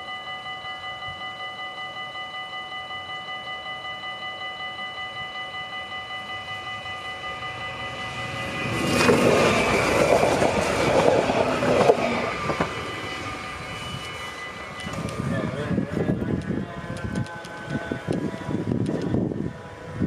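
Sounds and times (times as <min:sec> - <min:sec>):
electric train passing: 0:00.0 - 0:20.0
level crossing warning bells: 0:00.0 - 0:20.0
train clattering over rails: 0:07.7 - 0:19.0.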